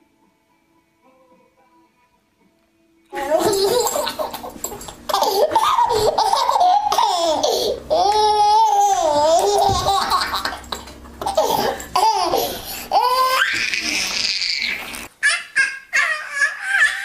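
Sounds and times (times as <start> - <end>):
baby laughing and squealing: 3.4 - 17.0.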